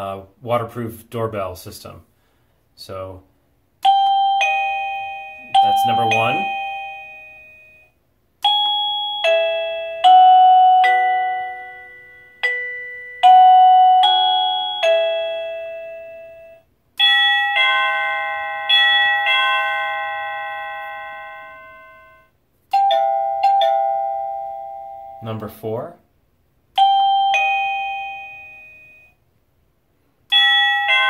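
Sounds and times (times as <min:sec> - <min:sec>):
electronic doorbell chime: 0:03.8 - 0:25.5, 0:26.8 - 0:29.2, 0:30.3 - 0:31.0.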